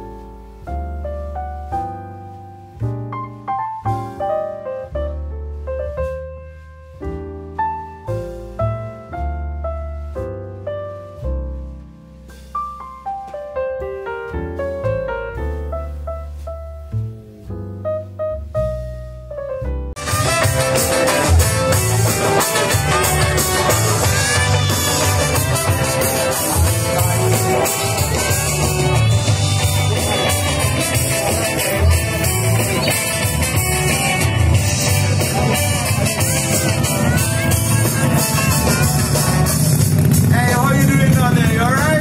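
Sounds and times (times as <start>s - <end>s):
pulsing bass: 14.4s - 42.0s
rock band playing live: 20.0s - 42.0s.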